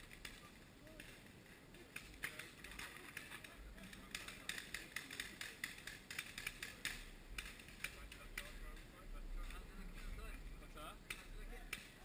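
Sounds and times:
distant paintball markers popping: 0:01.8 - 0:08.6, 0:11.1 - 0:12.0.

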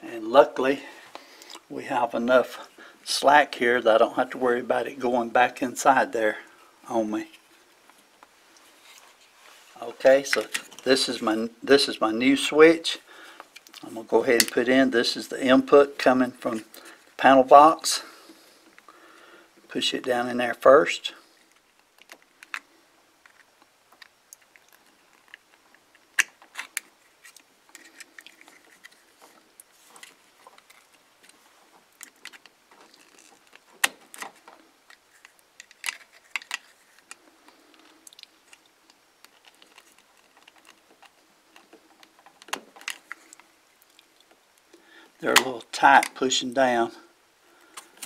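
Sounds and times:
wires clicking into connectors: 0:29.6 - 0:44.7.

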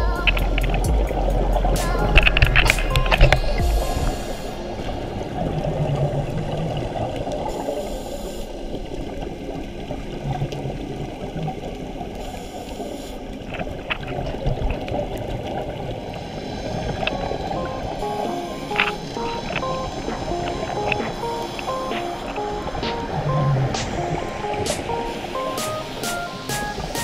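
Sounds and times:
bubbles gurgling underwater: 0:02.4 - 0:08.0, 0:13.4 - 0:25.6.

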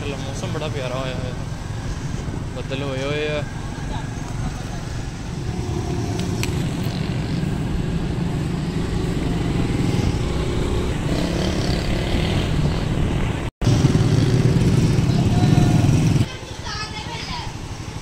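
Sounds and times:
wind noise on microphone: 0:05.1 - 0:16.2.

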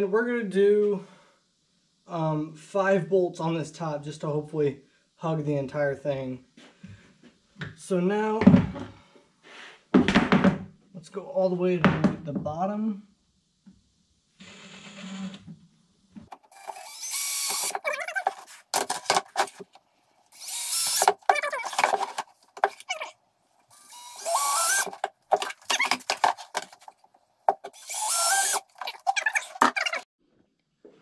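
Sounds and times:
cordless drill whirring: 0:16.5 - 0:17.8, 0:20.4 - 0:21.8, 0:23.7 - 0:25.1, 0:27.6 - 0:28.7.

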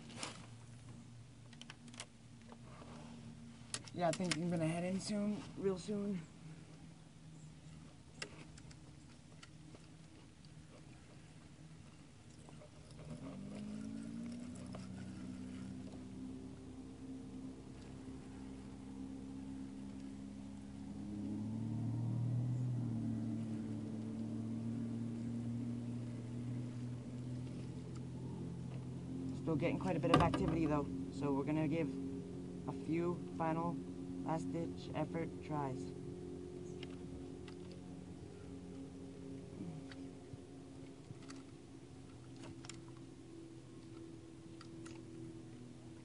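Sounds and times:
motor engine humming: 0:00.0 - 0:46.0.

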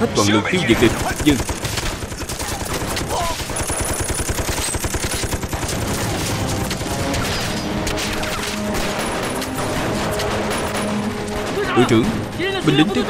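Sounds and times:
dramatic background music: 0:00.0 - 0:13.0
rifle and machine-gun fire: 0:00.7 - 0:13.0.

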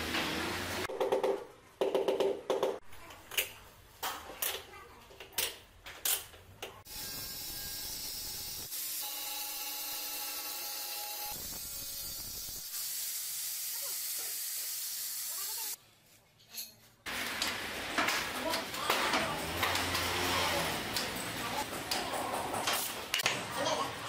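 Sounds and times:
angle grinder cutting tile: 0:06.9 - 0:15.8, 0:19.0 - 0:21.6.

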